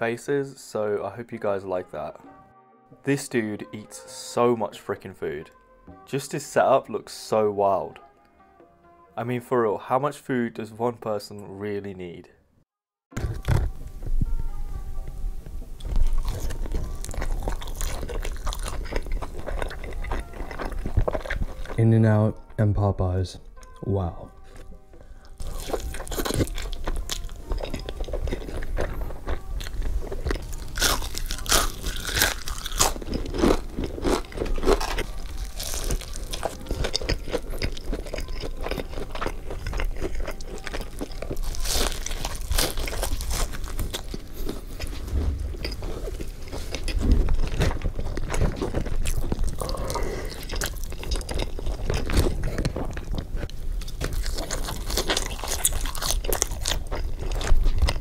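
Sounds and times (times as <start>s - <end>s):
person crunching fried food: 15.9s - 21.8s, 25.3s - 58.0s.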